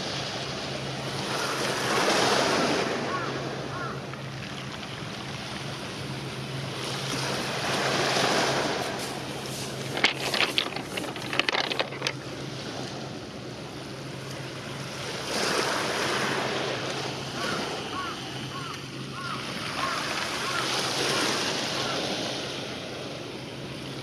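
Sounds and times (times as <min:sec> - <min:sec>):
water lapping at shore: 0:00.0 - 0:24.0
sharp clicks and knocks: 0:09.7 - 0:12.2.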